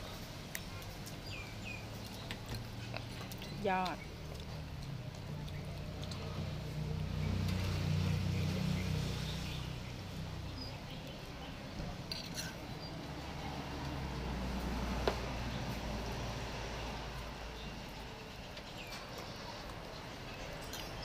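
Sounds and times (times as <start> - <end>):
engine hum: 0.0 - 21.0
cutlery clinking: 12.1 - 12.6.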